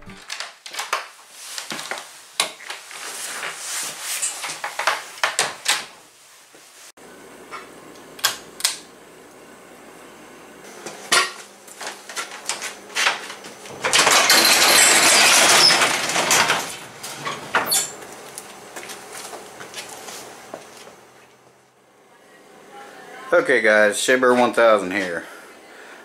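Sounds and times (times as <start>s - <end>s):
garage door rattling open: 13.0s - 18.0s.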